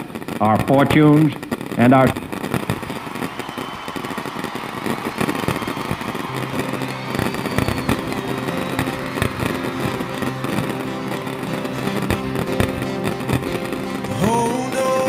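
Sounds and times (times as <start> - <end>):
fireworks bangs and crackling: 0.0 - 15.0
musical tones from loudspeakers: 6.2 - 15.0.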